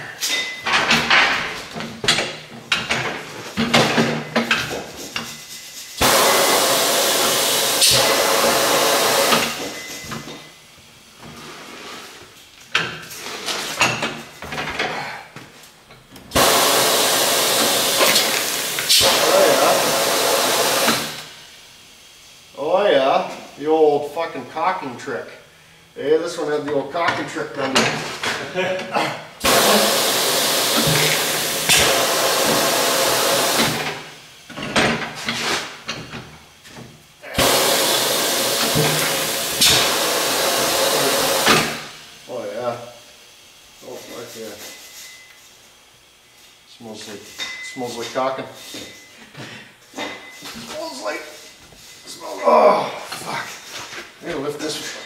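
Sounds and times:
compressed air hissing: 0:04.8 - 0:10.0, 0:16.3 - 0:21.6, 0:29.4 - 0:34.2, 0:37.2 - 0:42.1.

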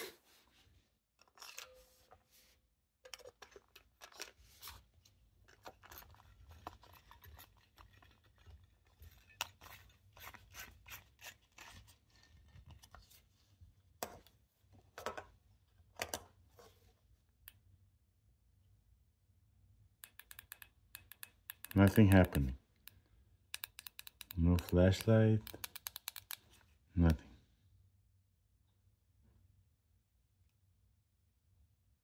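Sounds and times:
rubbing and scraping on stone: 0:05.6 - 0:13.3
small plastic clicks: 0:20.0 - 0:27.2.

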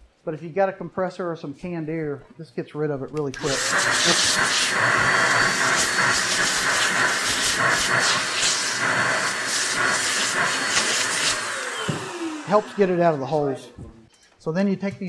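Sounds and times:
compressed air hissing: 0:03.4 - 0:13.5.

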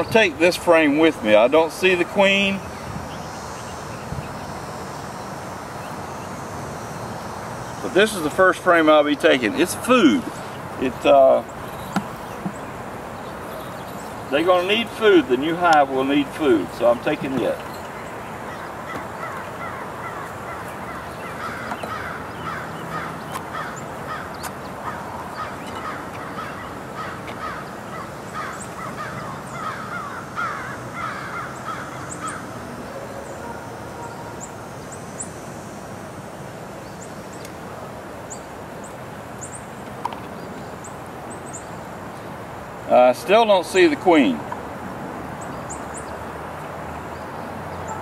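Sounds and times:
flock of birds calling: 0:00.0 - 0:35.5
outdoor background noise: 0:00.0 - 0:48.0.

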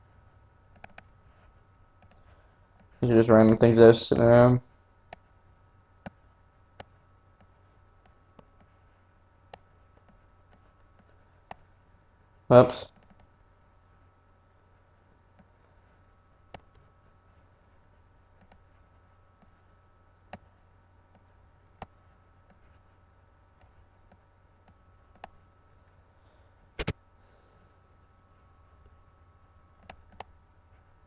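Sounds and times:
faint steady hum: 0:00.0 - 0:31.0
computer mouse clicking: 0:00.7 - 0:01.2, 0:02.0 - 0:03.6, 0:05.1 - 0:05.3, 0:06.8 - 0:08.8, 0:09.5 - 0:11.7, 0:12.9 - 0:13.4, 0:16.5 - 0:16.8, 0:18.4 - 0:18.8, 0:20.3 - 0:22.8, 0:23.6 - 0:25.4, 0:29.8 - 0:30.4.

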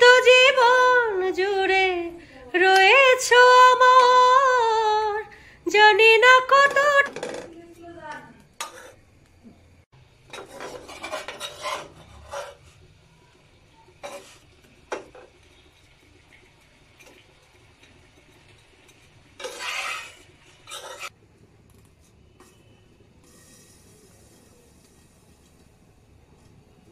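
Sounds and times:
metal spatula scraping frying pan: 0:08.6 - 0:09.1, 0:10.2 - 0:12.9, 0:13.9 - 0:15.3, 0:18.5 - 0:21.2.

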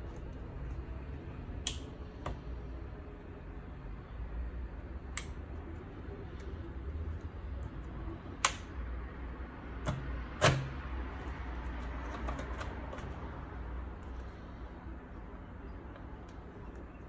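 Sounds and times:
plastic clips snapping: 0:08.4 - 0:08.7.

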